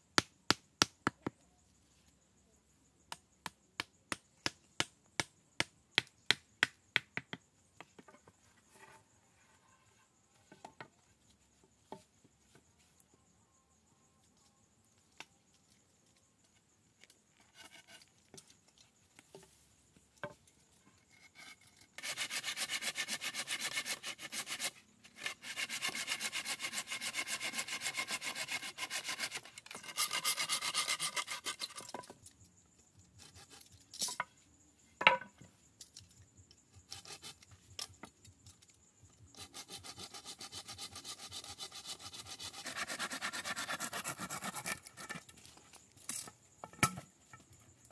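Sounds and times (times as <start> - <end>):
hand tool rasping wood: 21.3 - 31.9, 39.4 - 45.2.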